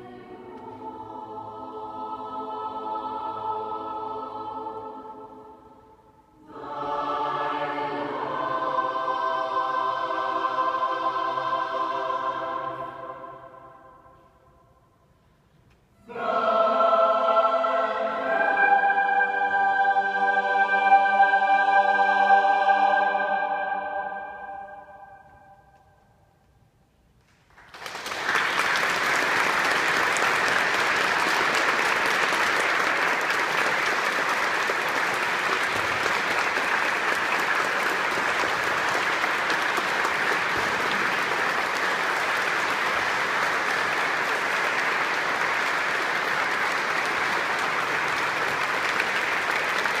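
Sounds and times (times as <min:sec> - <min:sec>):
audience applause: 0:27.5 - 0:50.0.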